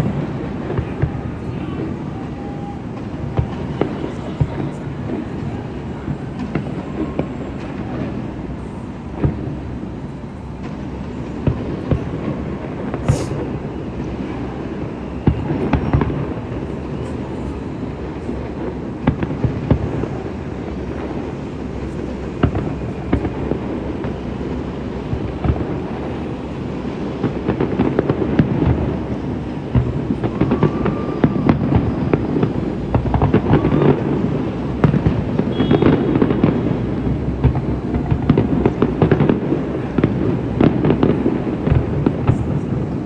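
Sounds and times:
fireworks bangs and crackles: 0:00.0 - 0:43.0
deep rumble: 0:29.7 - 0:39.0.

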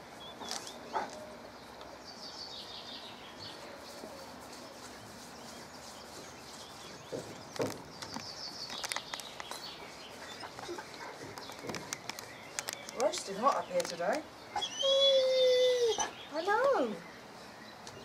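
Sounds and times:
birds chirping: 0:00.0 - 0:18.0
light knocks and clicks: 0:07.0 - 0:09.6.

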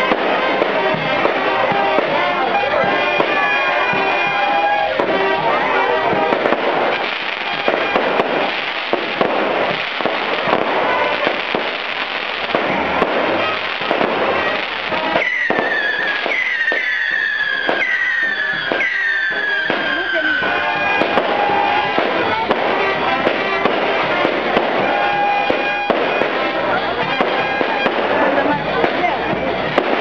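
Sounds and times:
fireworks crackling and banging: 0:00.0 - 0:30.0
falling firework whistles: 0:06.4 - 0:22.3.

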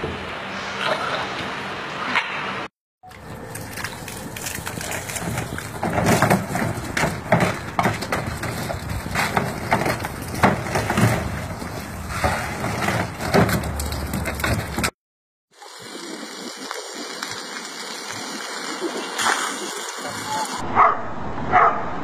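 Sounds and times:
water splashing into plastic pool: 0:03.1 - 0:14.9
water spraying from hose: 0:03.1 - 0:14.9, 0:15.5 - 0:20.6.

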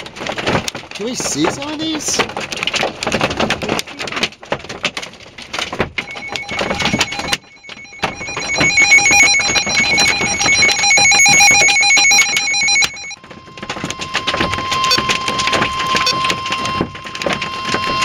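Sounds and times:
hail and rain on car: 0:00.0 - 0:06.2, 0:13.2 - 0:18.0
shrill electronic alert tone: 0:06.0 - 0:13.2, 0:14.1 - 0:18.0.

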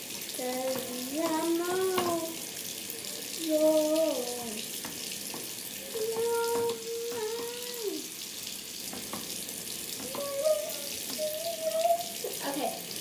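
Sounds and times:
girl singing: 0:00.3 - 0:02.4, 0:03.4 - 0:04.7, 0:05.8 - 0:08.1, 0:10.0 - 0:12.4
tap running into sink: 0:00.4 - 0:02.6, 0:03.4 - 0:08.0, 0:08.8 - 0:12.4.

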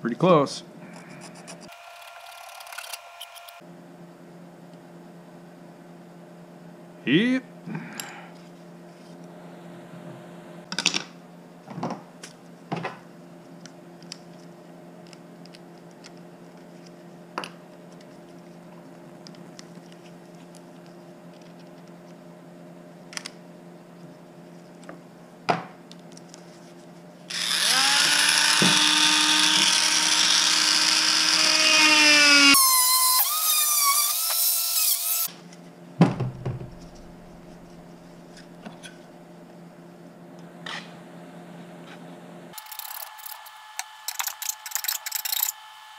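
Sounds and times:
rotary tool spinning: 0:42.6 - 0:45.7.

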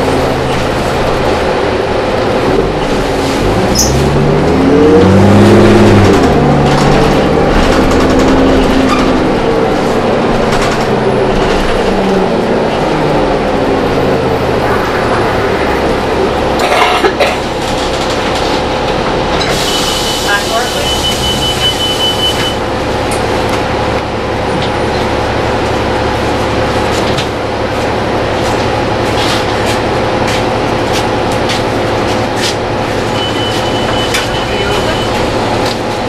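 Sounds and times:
bus diesel engine accelerating: 0:00.0 - 0:36.0
rattles and knocks: 0:06.0 - 0:09.5.

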